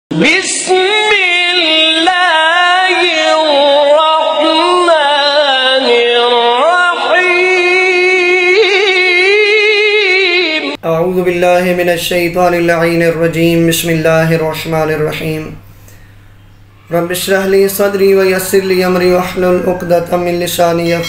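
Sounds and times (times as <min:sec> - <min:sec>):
person singing devotional chant: 0:00.1 - 0:13.5.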